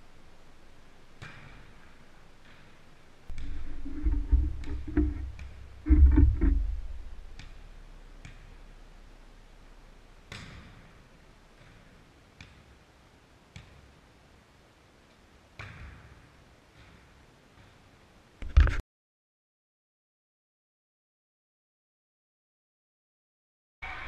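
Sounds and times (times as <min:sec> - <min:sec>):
volleyball smack: 0:10.3 - 0:10.9.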